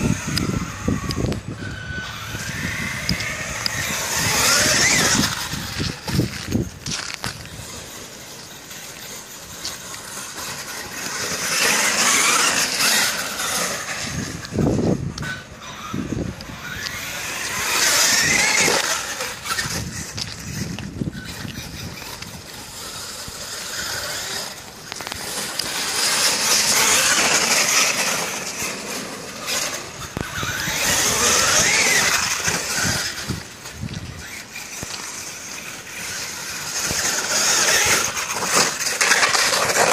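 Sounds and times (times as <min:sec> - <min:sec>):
electric motor whining: 0:00.0 - 0:39.9
tyres hissing through slush: 0:07.2 - 0:14.4, 0:21.3 - 0:39.9.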